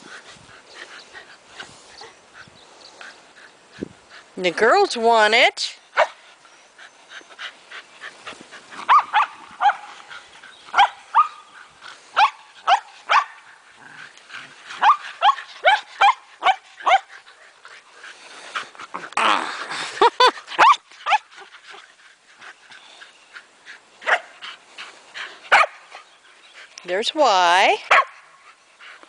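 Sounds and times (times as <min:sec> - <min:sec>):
dogs barking: 0:08.8 - 0:09.9, 0:10.7 - 0:11.5, 0:25.5 - 0:25.8, 0:27.9 - 0:28.2.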